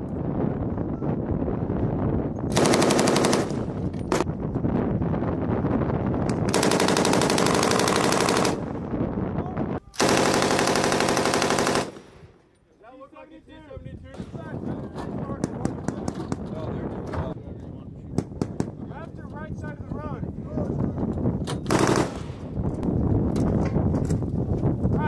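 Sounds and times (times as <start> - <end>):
machine gun automatic fire: 2.5 - 4.2, 6.5 - 8.7, 10.0 - 12.2, 21.7 - 22.4.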